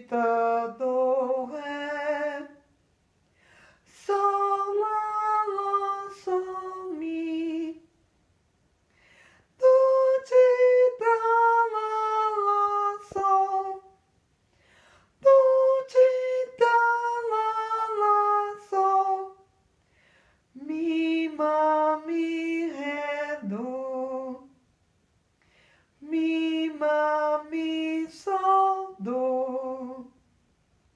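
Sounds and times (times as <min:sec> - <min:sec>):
woman singing unaccompanied: 0:00.0 - 0:02.7, 0:03.9 - 0:07.9, 0:09.6 - 0:14.0, 0:15.2 - 0:19.5, 0:20.5 - 0:24.6, 0:26.0 - 0:30.2.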